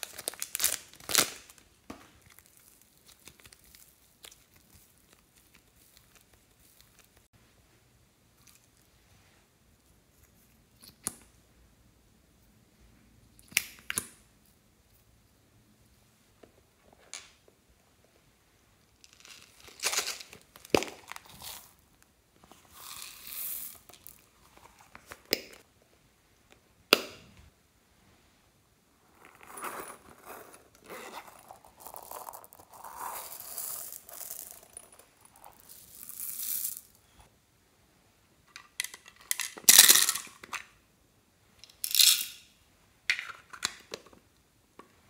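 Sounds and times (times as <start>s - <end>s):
beads pouring into a glass bowl: 22.7s - 24.2s, 31.3s - 37.0s.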